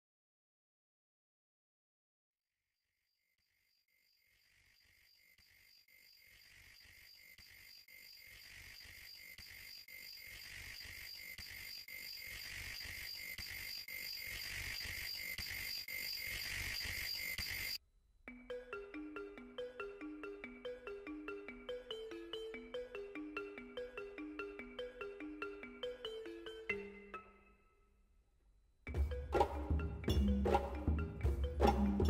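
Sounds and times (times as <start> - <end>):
insects chirping: 3.2 - 17.8.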